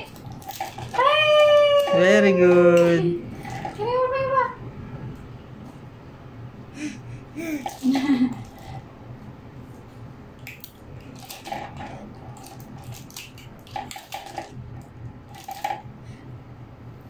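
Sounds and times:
plastic toys clicking and clattering: 0.0 - 3.9, 10.4 - 15.9.

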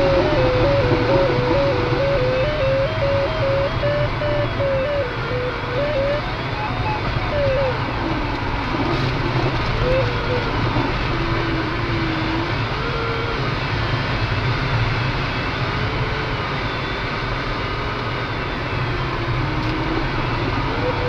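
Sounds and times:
faint pitch-sliding variometer tone: 0.0 - 13.4.

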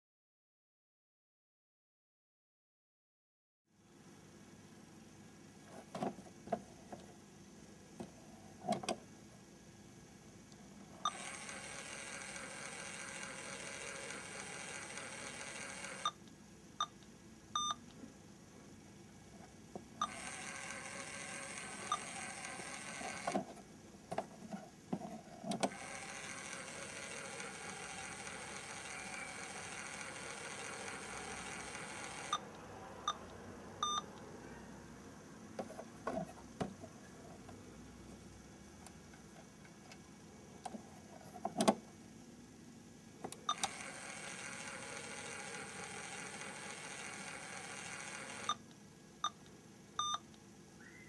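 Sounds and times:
small electric motor whirring: 11.1 - 16.1, 20.0 - 23.4, 25.7 - 32.4, 43.5 - 48.6.

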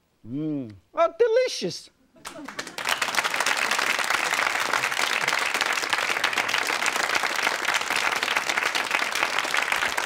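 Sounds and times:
audience applauding: 2.2 - 10.0.

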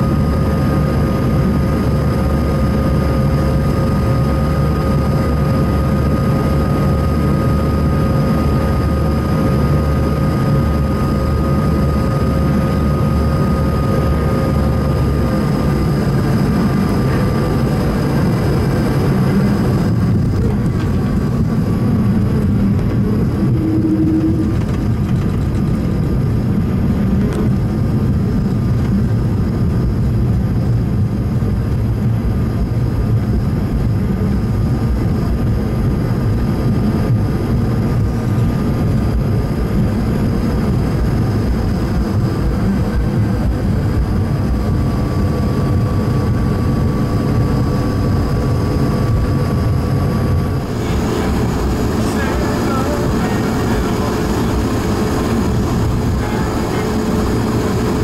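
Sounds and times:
faint steady whine: 0.0 - 58.0
jet engines rumbling: 0.0 - 58.0
wheel and airflow noise: 0.0 - 58.0.

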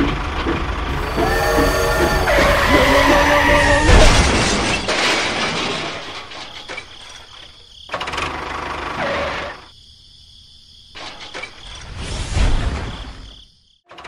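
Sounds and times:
toy train crashing and shattering: 2.4 - 7.6.

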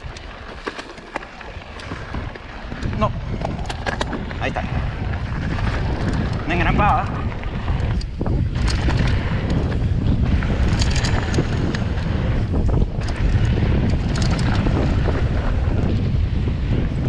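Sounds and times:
bike ticks and rattles: 0.0 - 17.0
wind buffeting microphone: 0.0 - 17.0
tyre noise on dirt: 7.2 - 17.0.

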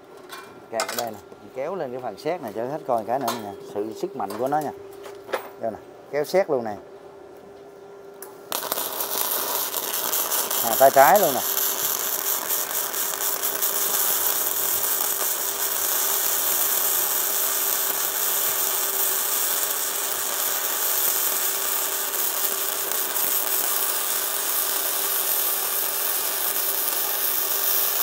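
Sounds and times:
faint hum: 0.0 - 18.5
welding arc crackling hiss: 8.2 - 28.0.

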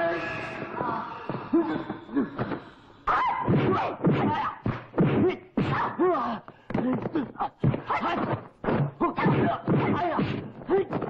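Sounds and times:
fighters yelling: 0.0 - 1.4
punch and kick impacts: 3.4 - 5.9, 6.8 - 11.0.

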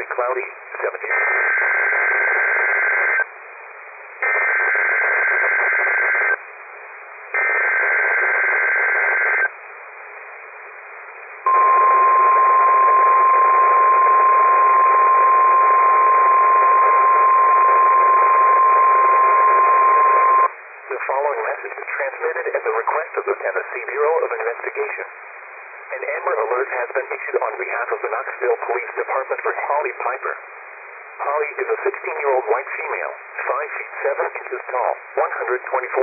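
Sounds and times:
radio static: 0.0 - 3.2, 4.2 - 6.4, 7.4 - 9.5, 11.5 - 25.1, 25.9 - 30.4, 31.2 - 36.0
steady warning tone: 11.5 - 20.5.

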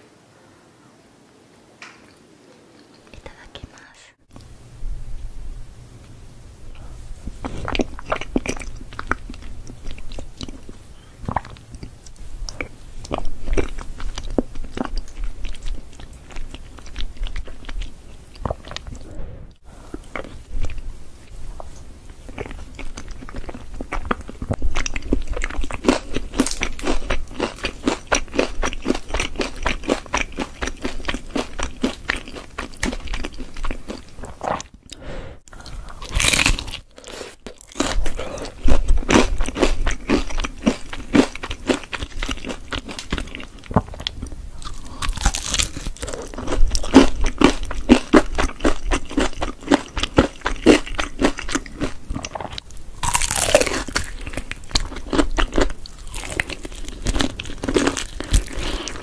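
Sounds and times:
crackly mouth clicks: 2.8 - 4.5
person chewing food: 6.8 - 59.0.

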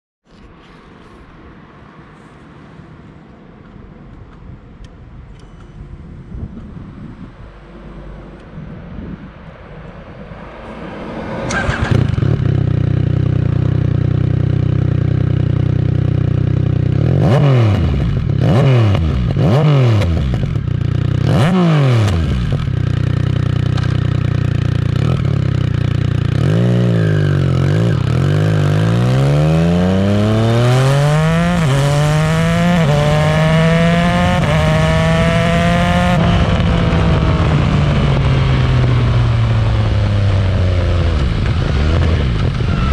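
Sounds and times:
motorcycle engine revving: 7.0 - 42.9
motorcycle accelerating through gears: 8.2 - 42.9
motorcycle engine idling: 22.5 - 28.6.

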